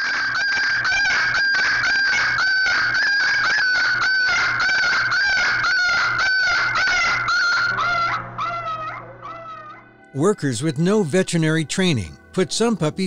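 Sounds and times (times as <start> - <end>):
puppy screaming in pain: 0.0 - 9.8.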